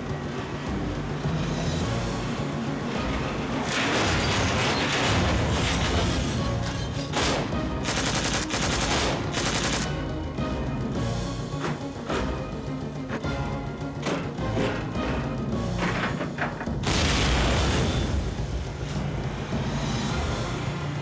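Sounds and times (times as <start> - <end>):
dramatic film score music: 0.0 - 21.0
automatic gunfire bursts: 7.8 - 10.0.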